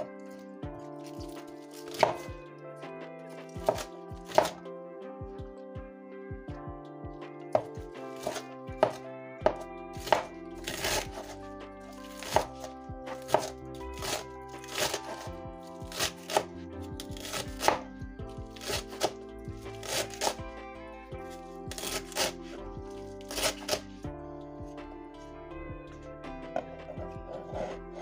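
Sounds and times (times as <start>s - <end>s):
background music with held tones: 0.0s - 28.0s
knife chopping on cutting board: 1.0s - 2.3s, 3.5s - 4.6s, 7.5s - 11.4s, 12.0s - 17.9s, 18.5s - 20.4s, 21.7s - 22.4s, 23.2s - 23.8s.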